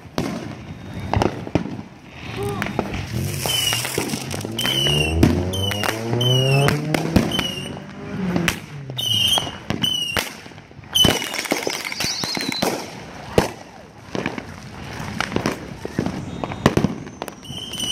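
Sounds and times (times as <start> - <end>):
fireworks bangs and crackling pops: 0.0 - 17.9
falling whistle-like tones: 0.6 - 1.5, 2.7 - 7.9, 9.0 - 10.2, 10.9 - 12.8, 16.0 - 17.9.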